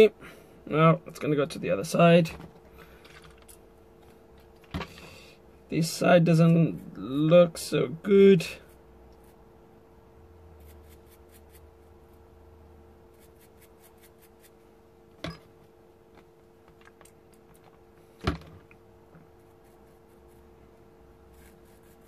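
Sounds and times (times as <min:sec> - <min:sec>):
steady faint hum: 0:00.0 - 0:22.0.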